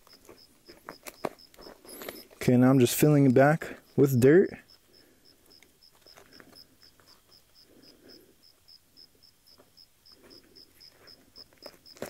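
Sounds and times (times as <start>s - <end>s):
cricket chirping: 0.0s - 12.0s
hands scraping soil: 0.1s - 3.4s.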